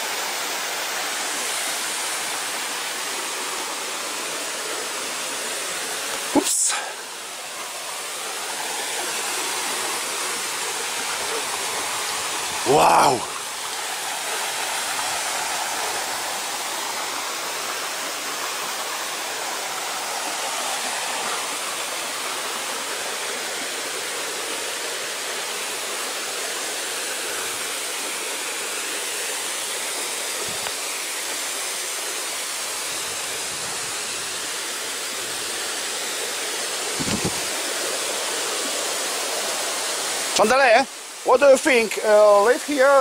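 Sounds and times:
waterfall rushing over rocks: 0:00.0 - 0:43.0
low thump: 0:37.0 - 0:37.5.

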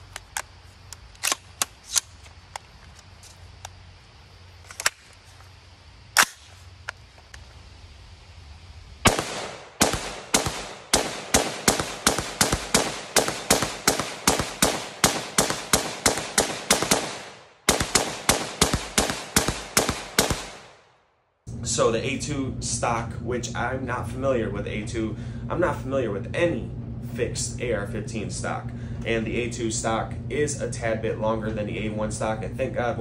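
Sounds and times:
rapid rifle fire with echo: 0:09.0 - 0:20.9.

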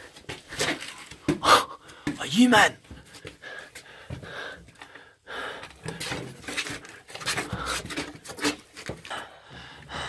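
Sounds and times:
person panting heavily: 0:01.3 - 0:02.2, 0:03.0 - 0:06.3, 0:07.3 - 0:08.1, 0:09.0 - 0:10.0.

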